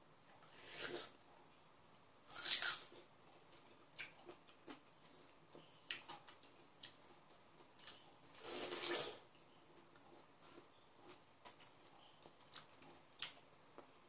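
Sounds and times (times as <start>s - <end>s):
moist chewing clicks: 9.7s - 13.9s.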